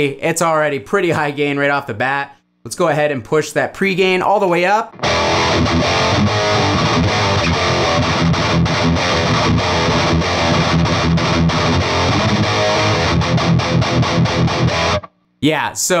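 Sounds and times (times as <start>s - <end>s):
distorted electric guitar riffing: 4.9s - 15.1s.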